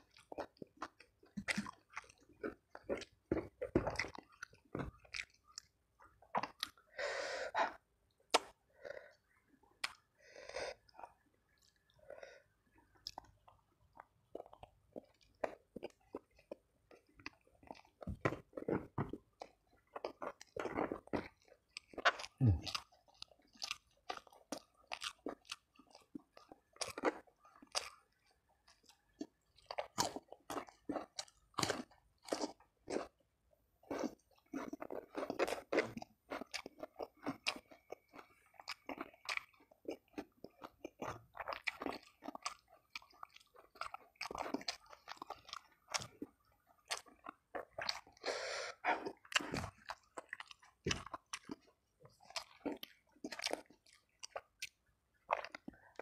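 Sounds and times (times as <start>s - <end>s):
man chewing crunchy food: 0.0s - 6.9s, 9.2s - 56.0s.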